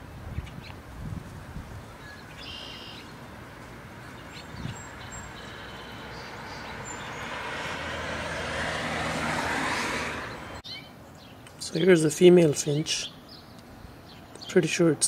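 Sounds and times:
finch chirps: 2.0s - 3.2s, 4.1s - 7.3s
road vehicle passing: 2.5s - 11.2s.

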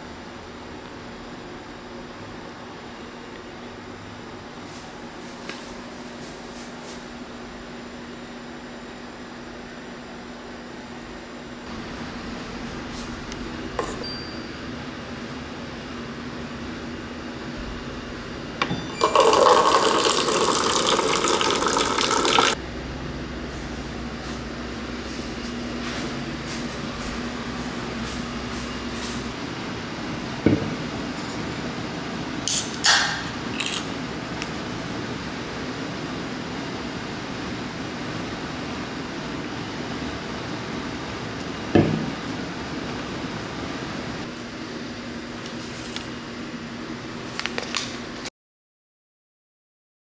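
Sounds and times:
low rumbling hum: 11.6s - 19.7s, 21.8s - 31.1s.

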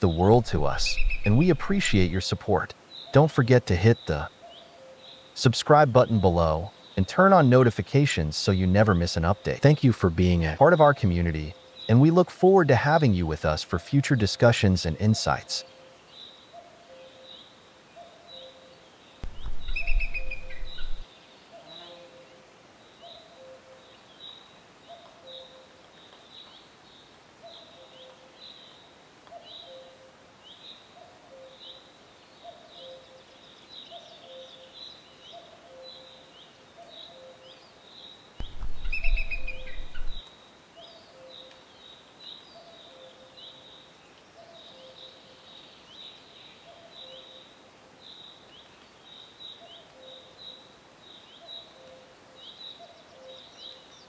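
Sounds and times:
birds chirping: 0.0s - 28.2s, 32.4s - 40.2s
loud low thump: 38.4s - 40.2s.

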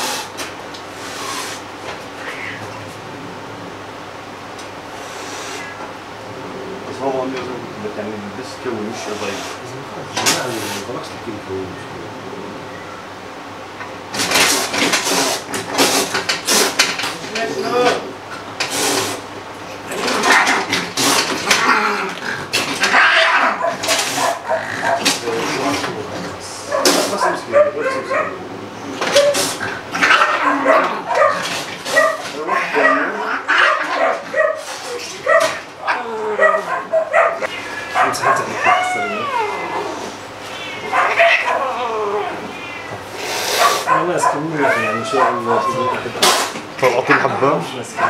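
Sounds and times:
cat hissing and spitting: 0.0s - 1.7s, 4.9s - 5.8s, 9.0s - 11.0s, 14.2s - 17.0s, 18.6s - 19.3s, 19.9s - 25.8s, 26.8s - 27.2s, 29.0s - 32.0s, 33.2s - 35.2s, 42.4s - 44.0s, 46.1s - 46.7s
cat crying: 1.1s - 2.9s, 5.5s - 6.9s, 19.9s - 26.0s, 26.6s - 46.5s.

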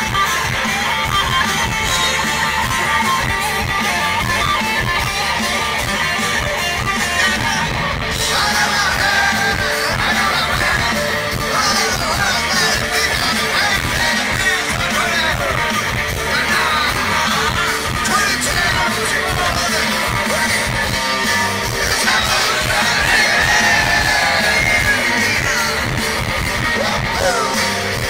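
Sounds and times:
live rock band playing: 0.0s - 28.0s
person singing: 7.1s - 28.0s.

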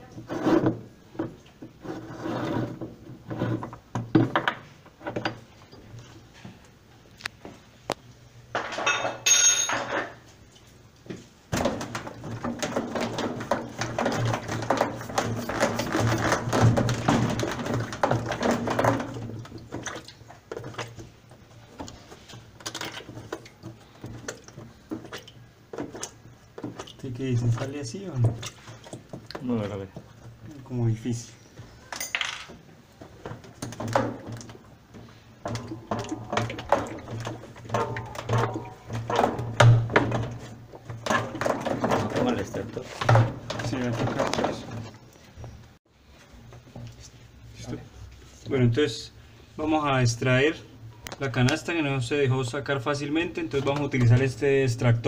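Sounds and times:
metallic clinks: 8.9s - 9.8s
continuous rattling clatter: 11.5s - 30.4s, 32.0s - 45.8s
metal clanking and scraping: 31.2s - 45.6s.

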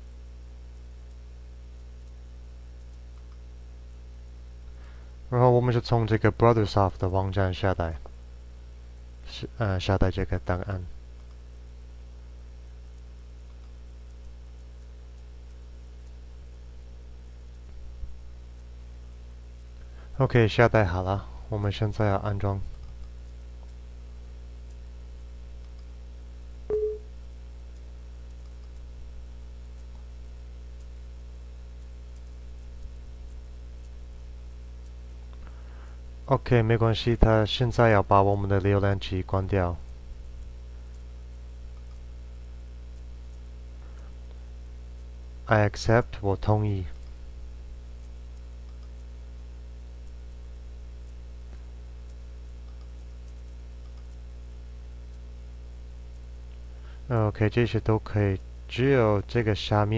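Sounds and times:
low electrical hum with hiss: 0.0s - 59.9s
faint clicks: 0.7s - 3.5s, 11.2s - 11.5s, 12.6s - 18.7s, 22.7s - 23.8s, 24.6s - 26.6s, 27.7s - 36.0s, 39.8s - 45.2s, 46.9s - 49.3s, 50.0s - 57.1s
faint click: 2.8s - 3.4s, 41.7s - 42.1s, 48.0s - 49.1s, 51.4s - 54.2s.

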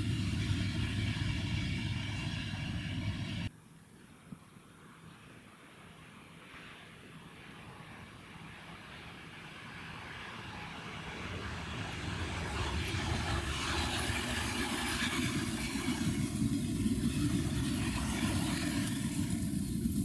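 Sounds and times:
diesel locomotive engine drone: 0.0s - 3.5s, 8.4s - 20.0s
train wheels on rails: 0.0s - 3.5s, 10.5s - 20.0s.

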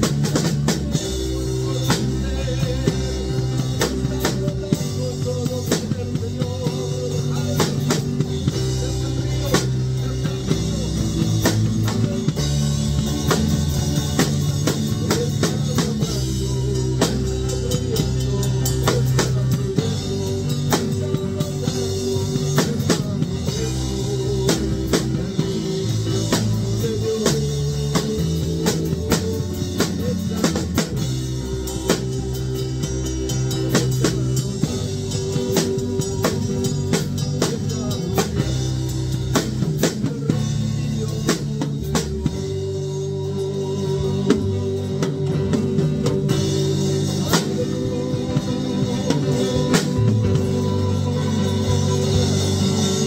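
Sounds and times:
drum kit playing: 0.0s - 53.0s
guitar and bass music: 0.0s - 53.0s.

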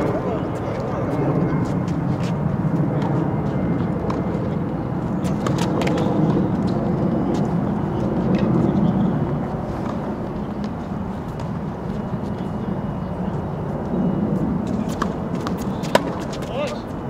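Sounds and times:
tennis balls struck by racquets: 14.7s - 16.7s.

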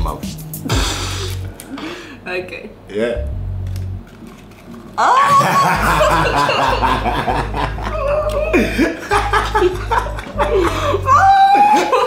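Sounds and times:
man and woman laughing: 5.2s - 12.0s.

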